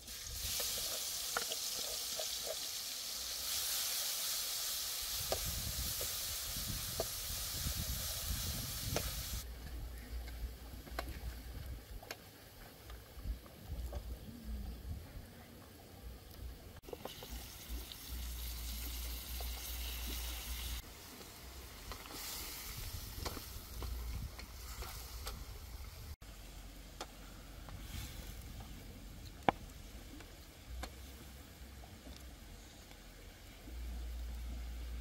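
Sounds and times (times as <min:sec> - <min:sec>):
meat sizzling in a wok: 0:00.0 - 0:09.4, 0:16.8 - 0:23.8
fire crackling: 0:00.0 - 0:15.0, 0:15.6 - 0:35.0.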